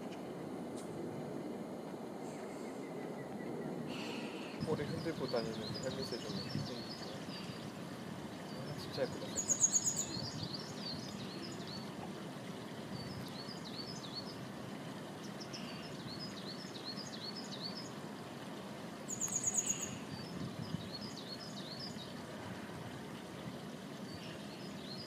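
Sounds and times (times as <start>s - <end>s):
low rushing background: 0.0s - 25.0s
songbirds calling: 0.0s - 25.0s
fast high bird trill: 8.5s - 14.5s, 19.0s - 22.2s.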